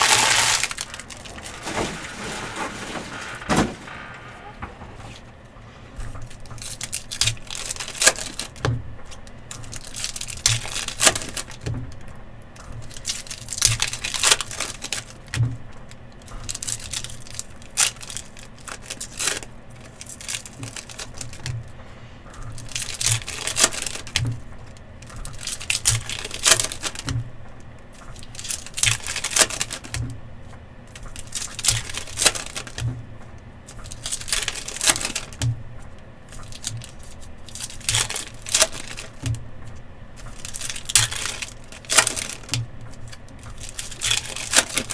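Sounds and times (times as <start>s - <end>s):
wrappers torn and crinkled: 0.0s - 3.5s, 6.2s - 8.6s, 9.2s - 11.7s, 12.8s - 15.4s, 16.2s - 21.6s, 22.5s - 24.2s, 25.0s - 27.1s, 28.1s - 30.0s, 30.9s - 32.8s, 33.7s - 35.4s, 36.3s - 39.3s, 40.2s - 44.9s.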